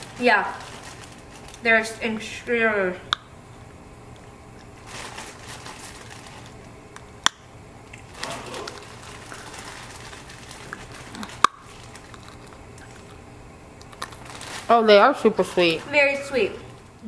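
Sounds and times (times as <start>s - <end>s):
soft rustling: 4.8s - 6.7s.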